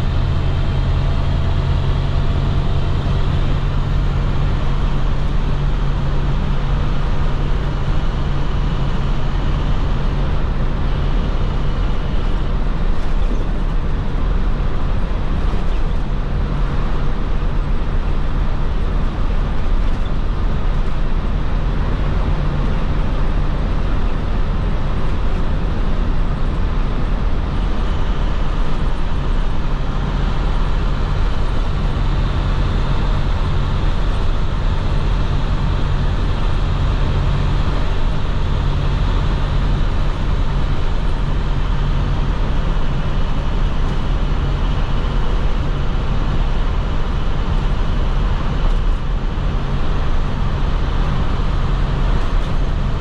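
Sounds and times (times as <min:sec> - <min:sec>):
diesel bus engine cruising: 0:00.0 - 0:53.0
road and tyre noise: 0:00.0 - 0:53.0.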